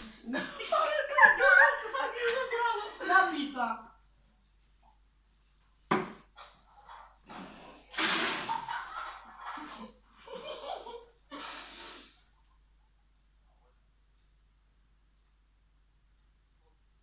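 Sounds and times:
noisy breaths through nose: 0:11.3 - 0:12.3.

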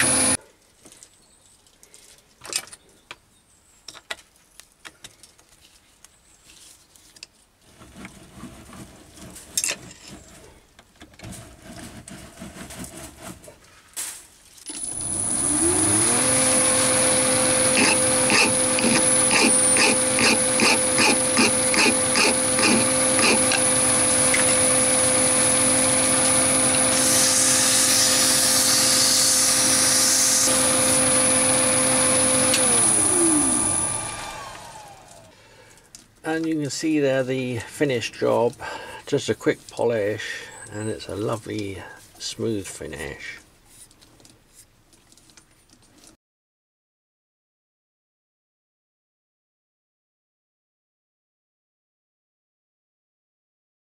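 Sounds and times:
lathe motor whine: 0:00.0 - 0:00.4, 0:14.8 - 0:35.3.

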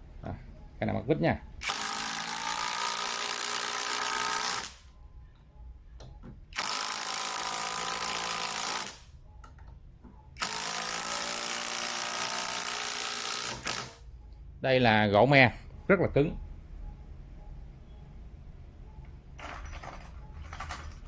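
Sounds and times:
impact driver driving screw into wood: 0:01.6 - 0:04.8, 0:06.5 - 0:09.0, 0:10.4 - 0:14.0.

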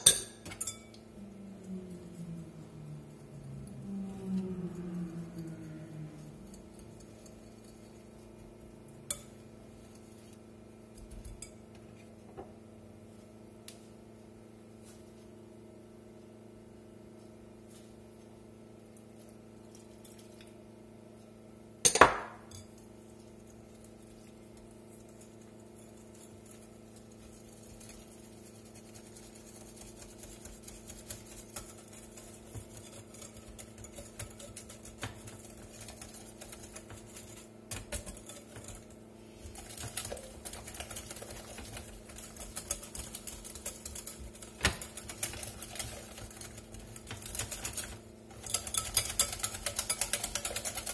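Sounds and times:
whisk clinking against glass bowl: 0:00.0 - 0:01.1, 0:06.4 - 0:10.4, 0:23.4 - 0:50.9
steady low hum: 0:00.0 - 0:50.9.

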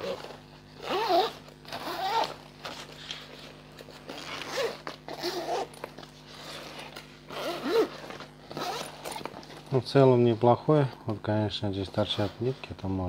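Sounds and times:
backpack zippers: 0:00.0 - 0:09.7.

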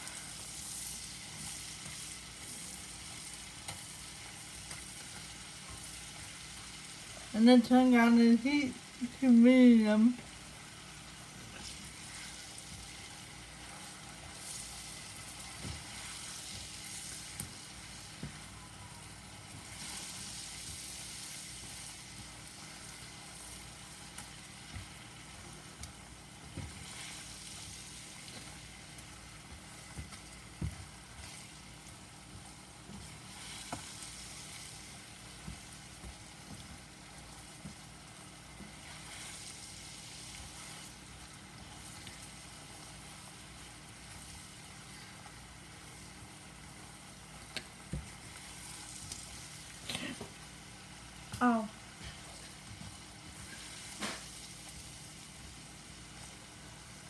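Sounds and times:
apple slices sizzling in pan: 0:00.0 - 0:57.0
spatula tapping pan: 0:29.4 - 0:31.5.

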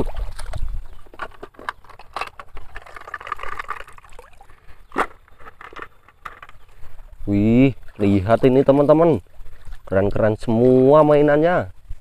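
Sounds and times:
plastic toys clicking and knocking: 0:01.1 - 0:04.2.

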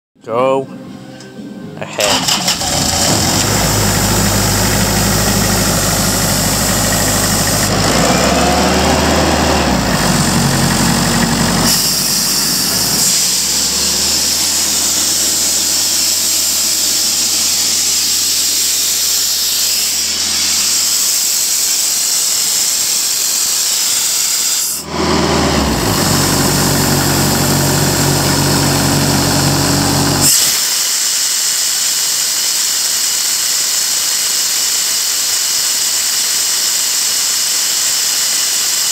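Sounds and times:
diesel engine running: 0:02.1 - 0:30.6
compressed air hissing: 0:02.2 - 0:38.9.

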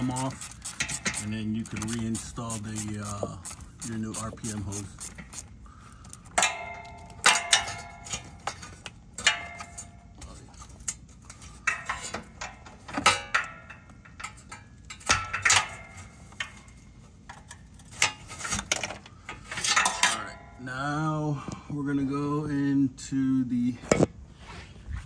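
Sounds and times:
ratchet clicking: 0:00.0 - 0:06.5.

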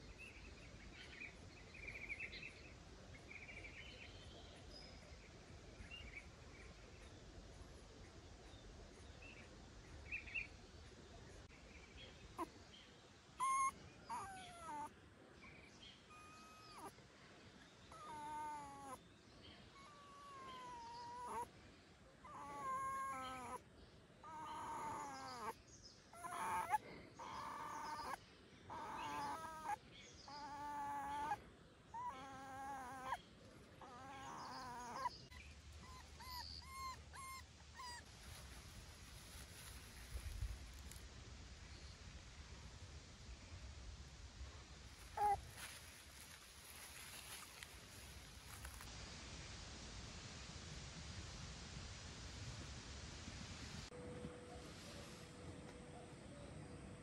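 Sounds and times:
puppy whining: 0:13.4 - 0:14.9, 0:16.1 - 0:16.9, 0:17.9 - 0:19.0, 0:19.8 - 0:21.5, 0:22.2 - 0:23.6, 0:24.2 - 0:25.6, 0:26.2 - 0:31.4, 0:32.0 - 0:33.2, 0:33.8 - 0:38.0, 0:45.2 - 0:45.4.

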